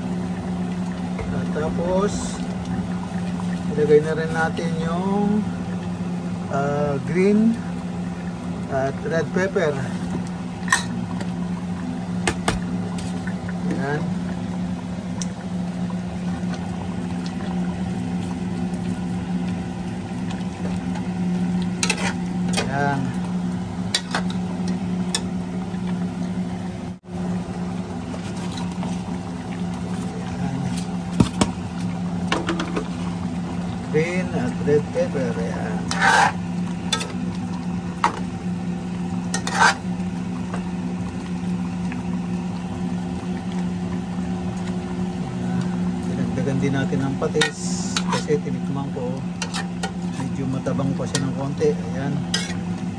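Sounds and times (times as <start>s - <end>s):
steady low hum: 0.0s - 52.9s
curry simmering in a pot: 9.8s - 52.9s
metal spoon scraping a pot: 35.8s - 36.4s, 39.3s - 39.8s, 52.3s - 52.6s.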